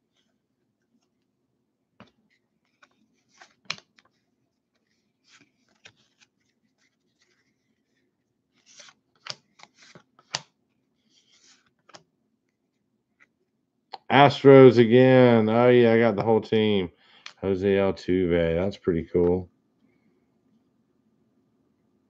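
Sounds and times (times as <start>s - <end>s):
cards shuffling clicks and swishes: 2.0s - 13.4s, 17.2s - 17.4s.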